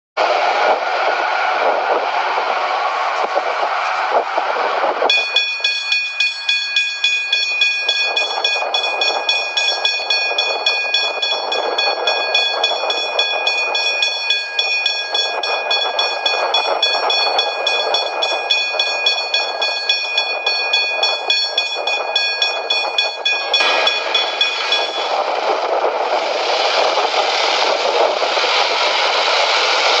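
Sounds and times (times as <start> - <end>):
steady rushing noise: 0.2 - 30.0
level crossing warning bell: 5.1 - 25.7.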